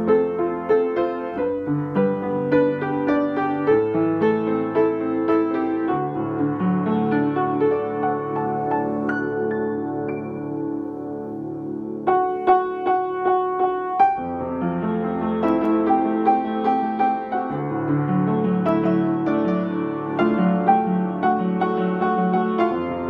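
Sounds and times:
piano music: 0.0 - 23.0.

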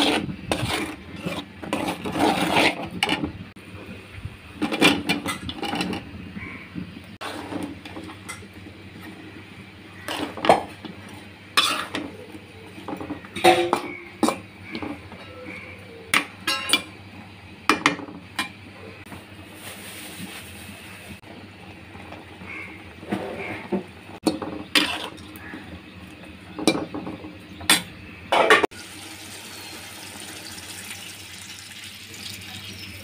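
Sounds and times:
spatula scraping a pan: 0.0 - 3.3, 10.0 - 14.4, 24.4 - 25.2.

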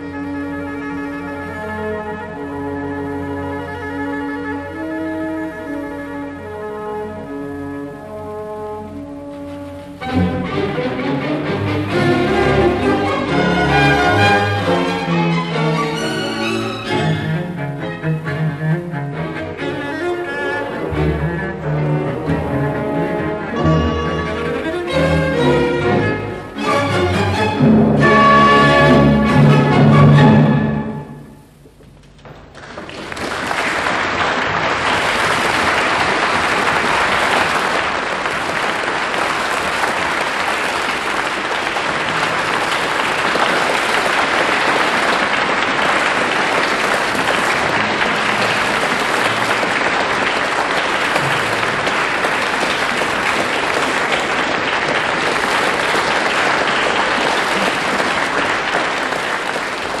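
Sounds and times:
audience applause: 32.4 - 60.0.

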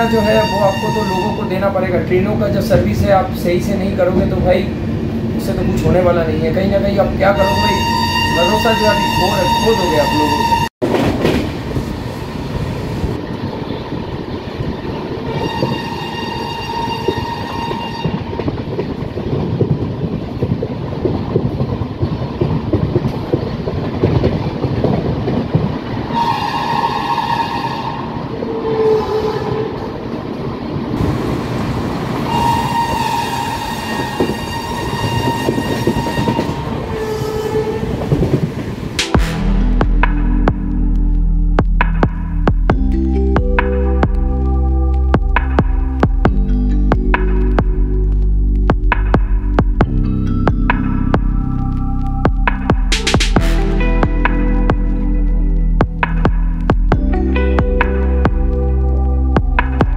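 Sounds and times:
train horn blasts: 0.0 - 1.7, 7.2 - 10.7, 15.3 - 18.4, 26.1 - 29.9, 32.3 - 38.1, 39.0 - 40.0, 53.4 - 55.2
train rumble and wheel clatter: 0.0 - 59.9.

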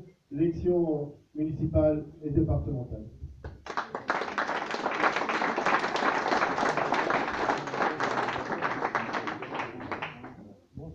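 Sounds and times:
people applauding: 3.5 - 10.4.

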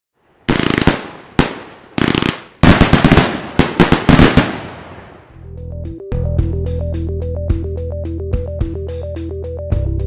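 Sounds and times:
fireworks bangs echoing: 0.5 - 5.3.

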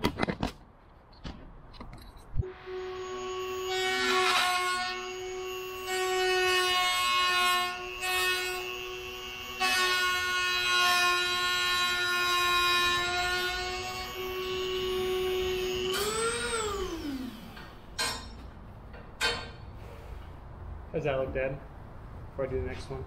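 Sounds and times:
freight train horn blasts: 2.4 - 10.5
power tool whine: 2.4 - 18.0.

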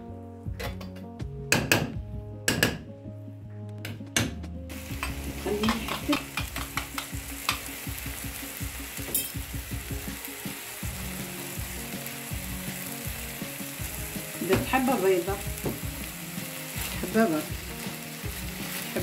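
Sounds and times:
filling sizzling in a frying pan: 4.7 - 19.0.

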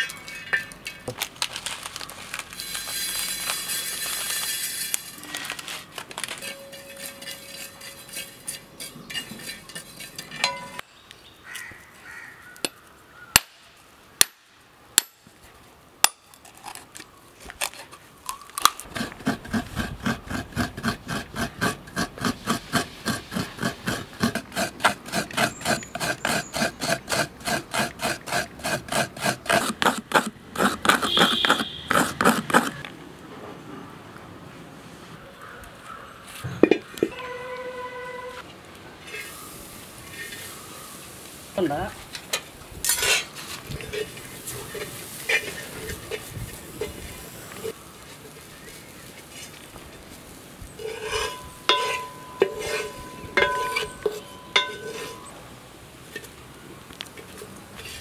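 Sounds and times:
coconut grating on metal scraper: 6.4 - 10.4, 18.9 - 32.8, 50.8 - 55.3
machete striking coconut: 13.4 - 15.2.

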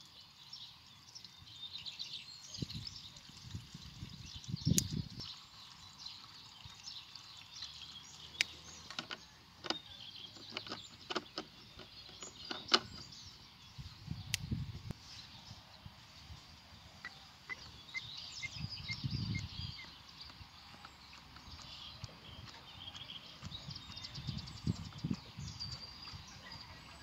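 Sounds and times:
soft rumbling handling noise: 8.5 - 15.5, 17.1 - 26.2.

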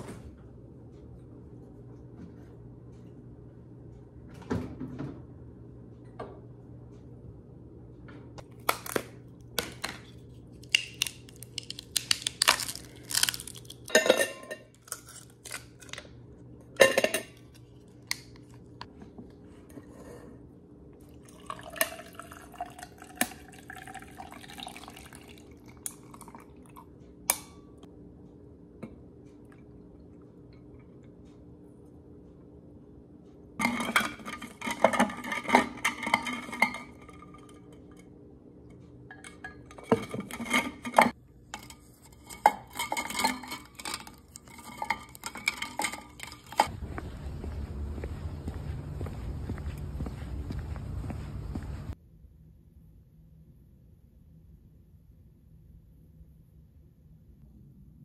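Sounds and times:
liquid pouring into tumbler: 21.0 - 26.8
metal clinking and rattling: 39.1 - 46.7.

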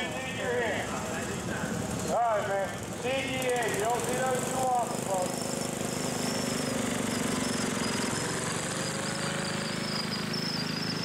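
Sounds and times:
garden tractor engines chugging: 0.0 - 11.0.

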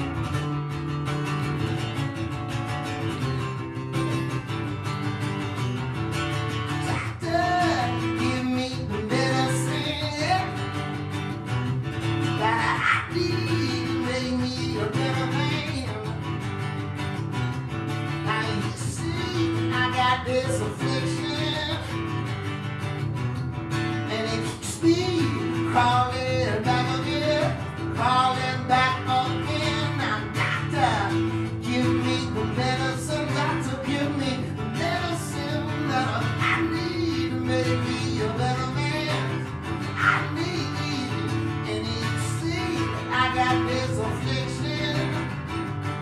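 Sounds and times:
acoustic guitar: 0.0 - 46.0
man singing: 6.7 - 10.9, 12.2 - 16.4, 18.2 - 22.1, 24.0 - 45.6.

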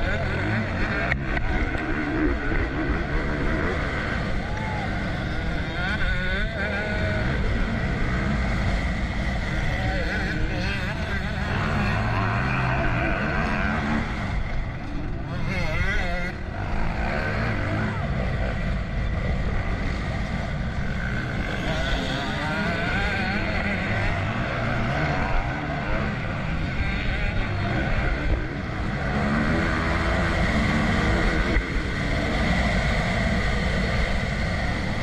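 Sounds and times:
motocross bike engine revving: 0.0 - 35.0.

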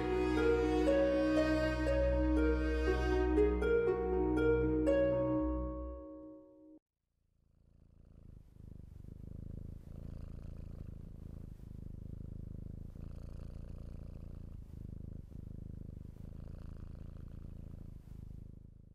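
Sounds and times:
cat purring: 7.5 - 18.9.

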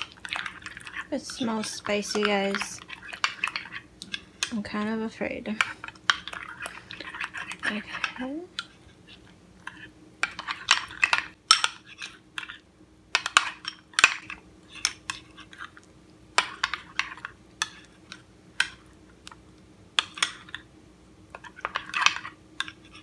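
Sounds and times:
spoon scraping glass bowl: 0.0 - 4.6, 5.6 - 12.6.

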